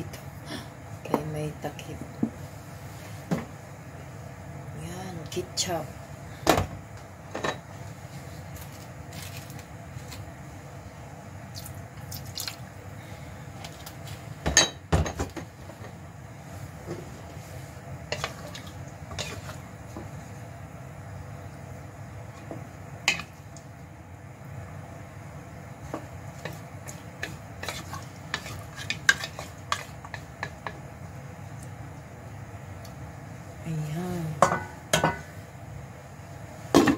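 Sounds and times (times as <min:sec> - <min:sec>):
steady low hum: 0:00.0 - 0:36.9
wooden spatula scraping a pot: 0:16.9 - 0:19.7, 0:26.3 - 0:30.7.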